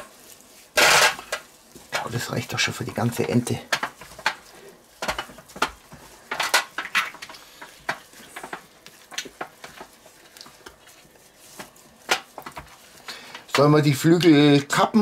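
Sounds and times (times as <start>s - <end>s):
wet squelches: 3.8s - 13.6s.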